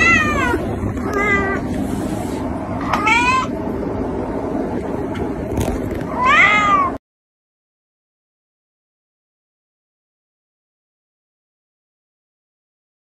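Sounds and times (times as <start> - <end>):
cat meowing: 0.0 - 1.7, 2.8 - 3.6, 6.1 - 7.0.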